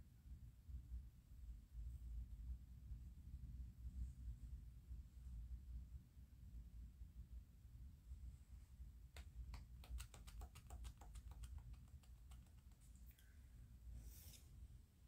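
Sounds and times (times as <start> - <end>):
low room hum: 0.0 - 15.0
light typing clicks: 9.2 - 13.2.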